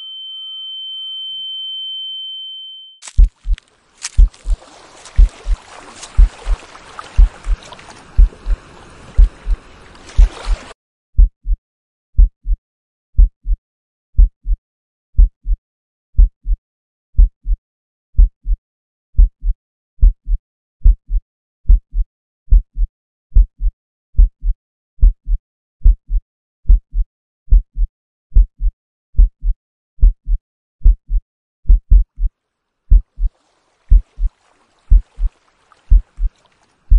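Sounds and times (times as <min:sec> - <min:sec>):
heartbeat thumps: 0:03.1 - 0:09.6, 0:11.2 - 0:11.6, 0:12.2 - 0:12.6, 0:13.2 - 0:13.6, 0:14.2 - 0:14.6, 0:15.2 - 0:15.6, 0:16.2 - 0:16.6, 0:17.2 - 0:17.6, 0:18.2 - 0:18.6, 0:19.2 - 0:32.3, 0:32.9 - 0:33.3, 0:33.9 - 0:34.3, 0:34.9 - 0:35.3, 0:35.9 - 0:36.3
rushing water-like hiss: 0:03.7 - 0:10.7.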